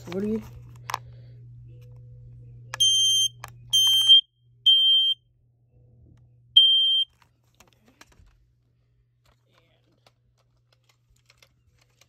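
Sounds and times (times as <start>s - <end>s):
smoke alarm high-pitched beeps: 2.8s - 5.2s, 6.6s - 7.1s.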